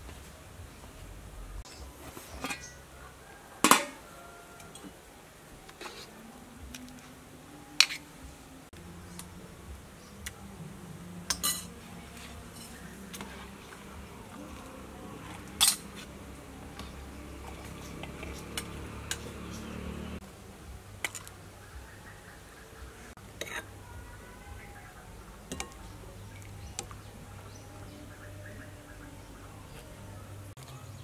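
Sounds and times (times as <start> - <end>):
ladle clinking on pot and bowl: 11.3 - 11.8.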